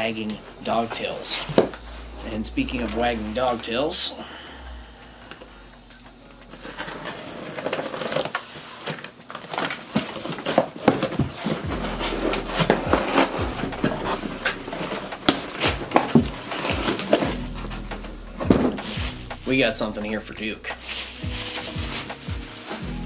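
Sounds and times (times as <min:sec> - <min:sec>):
bubble wrap crinkling: 0:00.0 - 0:04.0, 0:05.5 - 0:23.0.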